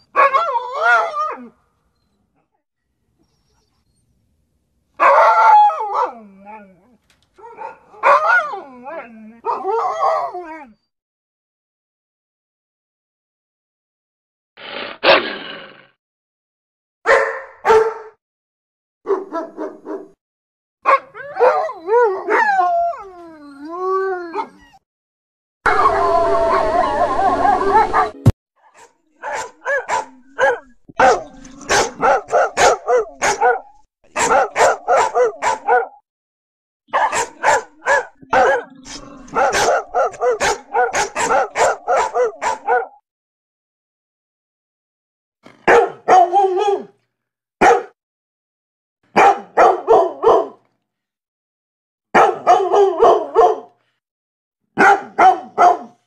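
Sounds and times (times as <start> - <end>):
dog barking: 0.1 - 1.1, 5.0 - 6.2, 7.5 - 8.5, 17.1 - 18.2, 19.1 - 20.2, 20.8 - 22.5, 27.4 - 36.0, 36.9 - 43.0, 45.6 - 46.9, 47.6 - 48.0, 49.1 - 50.6, 52.1 - 53.8, 54.8 - 56.0
dog yipping: 17.1 - 18.1, 28.7 - 36.0, 36.9 - 43.0, 47.6 - 48.0, 54.8 - 55.9
dog howling: 21.2 - 24.8, 25.7 - 28.2, 37.1 - 43.0.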